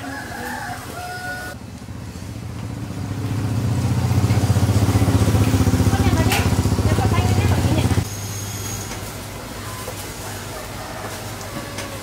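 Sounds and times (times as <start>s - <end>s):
small engine running: 2.0s - 8.8s.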